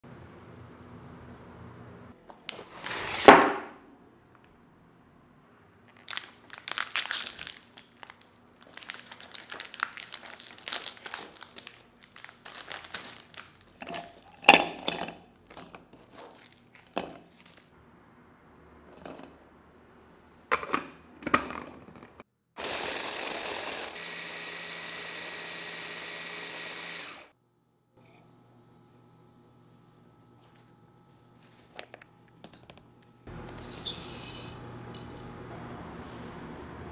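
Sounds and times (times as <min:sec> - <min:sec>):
plastic wrappers crinkling: 0:05.9 - 0:17.7
food processor motor grinding: 0:22.6 - 0:27.3.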